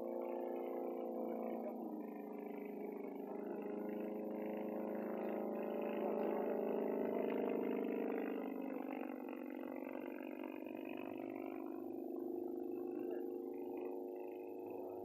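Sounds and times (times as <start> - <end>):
light plane engine drone: 0.0 - 15.0.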